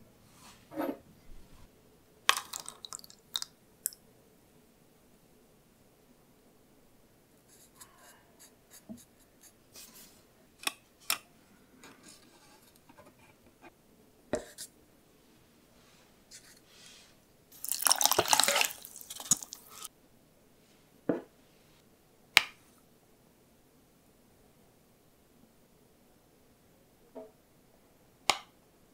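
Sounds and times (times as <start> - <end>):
rustling scrape: 0.3 - 1.7, 15.8 - 17.2.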